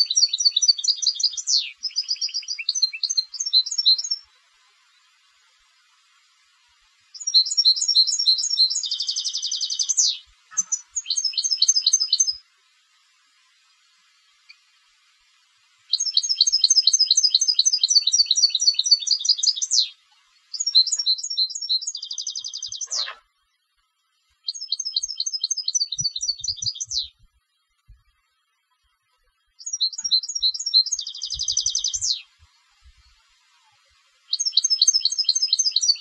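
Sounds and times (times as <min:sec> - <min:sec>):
goldfinch twittering song: 0:00.0 - 0:05.2, 0:07.1 - 0:12.5, 0:15.9 - 0:23.2, 0:24.4 - 0:27.3, 0:29.5 - 0:33.5, 0:34.2 - 0:36.0
bird buzzing trill: 0:00.0 - 0:12.5, 0:15.9 - 0:23.2, 0:24.5 - 0:27.3, 0:29.6 - 0:36.0.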